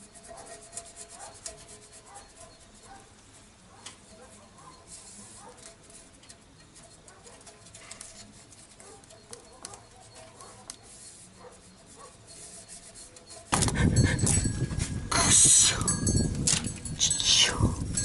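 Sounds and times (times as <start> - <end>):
hands rubbing and clicking: 4.9 - 13.8.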